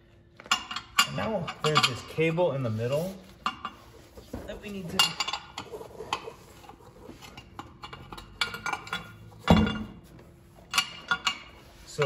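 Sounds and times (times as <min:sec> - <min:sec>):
metal clinking and rattling: 0:04.9 - 0:12.0.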